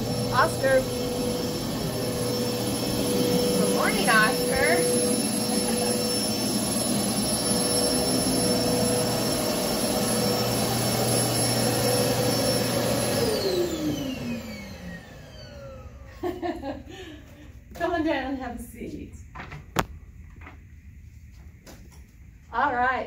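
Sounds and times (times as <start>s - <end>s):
electric motor whining: 0.0s - 16.0s.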